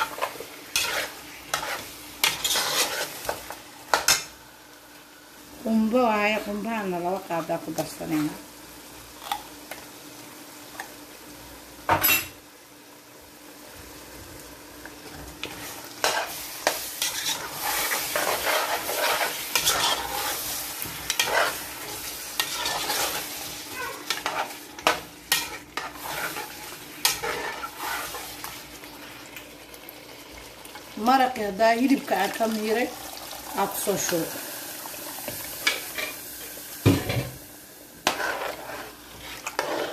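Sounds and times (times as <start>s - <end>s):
spoon scraping against pot: 0.0s - 4.2s, 15.4s - 28.3s, 38.0s - 39.9s
stew sizzling in a pot: 0.0s - 39.9s.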